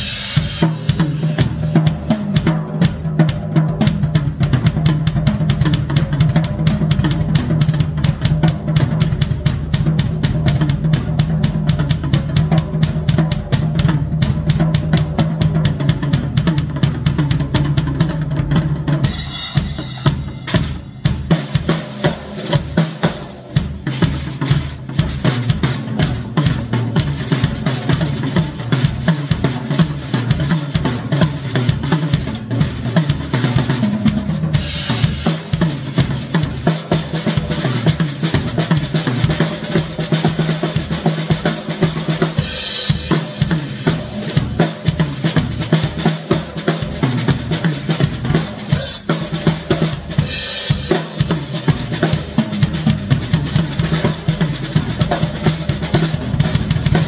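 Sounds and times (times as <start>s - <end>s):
cymbal crashes: 0.0s - 1.7s, 48.7s - 49.3s
drum solo: 0.0s - 57.0s.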